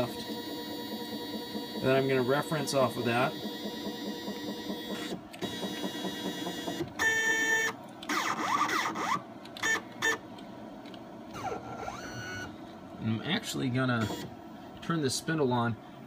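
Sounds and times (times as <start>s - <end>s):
stepper motors whining: 0.0s - 10.2s.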